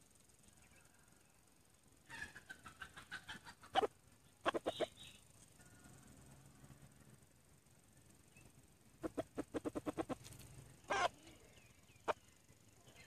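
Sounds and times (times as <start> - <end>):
junglefowl clucking and calling: 2.0 - 6.0, 9.0 - 11.3.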